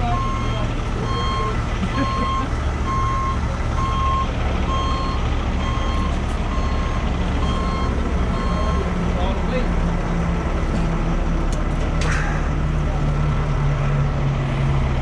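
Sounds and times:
truck reversing alarm beeping: 0:00.0 - 0:09.4
diesel engine running: 0:00.0 - 0:15.0.

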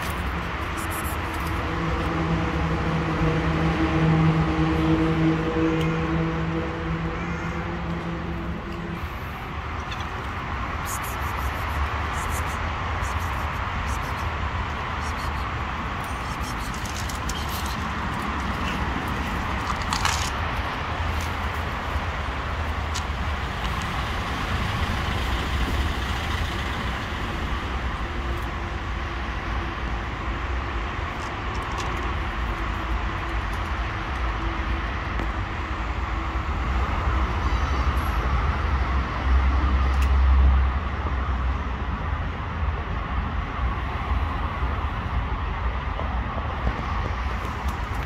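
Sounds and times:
vehicle passing: 0:00.0 - 0:28.0
road traffic rumble: 0:00.0 - 0:48.0.

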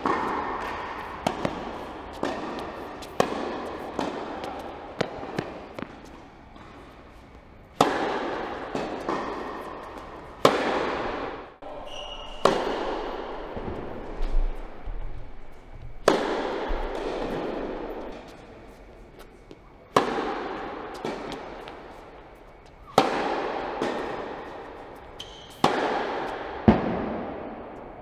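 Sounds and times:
tennis ball bouncing: 0:00.0 - 0:11.6, 0:12.2 - 0:27.6
tennis racket hitting ball: 0:00.0 - 0:11.6, 0:12.2 - 0:14.8, 0:15.6 - 0:18.4, 0:19.8 - 0:27.7
shoe squeak: 0:11.7 - 0:12.7, 0:25.0 - 0:25.6.

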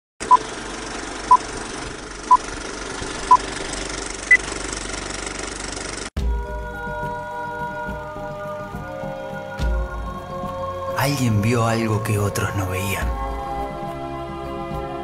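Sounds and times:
film projector clatter: 0:00.3 - 0:06.1
music: 0:06.2 - 0:15.0.

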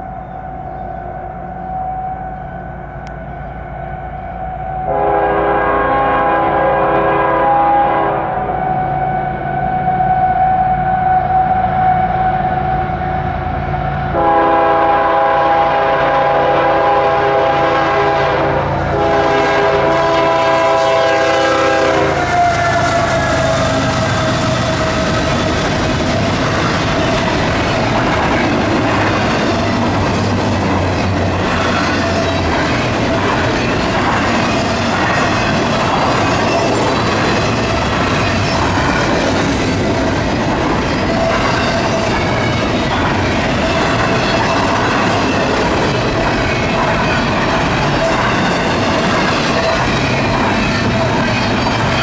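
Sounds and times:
train cars rumbling and clattering: 0:00.0 - 0:52.0
locomotive horn blasts: 0:02.3 - 0:13.0, 0:14.0 - 0:25.4.

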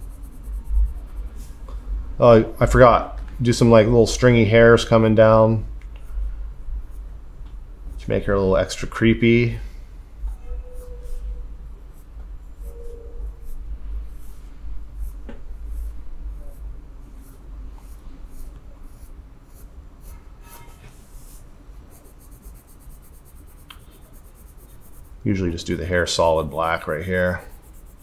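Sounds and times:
colored pencil scratching on paper: 0:00.0 - 0:01.5, 0:10.2 - 0:28.0
low steady hum: 0:00.0 - 0:28.0.

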